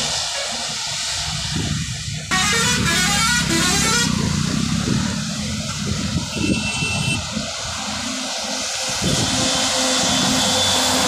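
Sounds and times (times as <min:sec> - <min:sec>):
low engine rumble: 0:00.0 - 0:11.0
tyres hissing on wet road: 0:00.0 - 0:11.0
vehicle horn: 0:02.3 - 0:04.2, 0:06.3 - 0:07.3.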